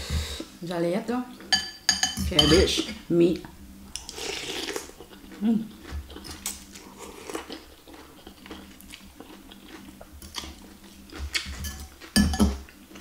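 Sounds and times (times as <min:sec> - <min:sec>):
cutlery clinking on glass bowl: 0:01.5 - 0:02.7, 0:11.6 - 0:12.6
slurping and chewing: 0:03.9 - 0:13.0.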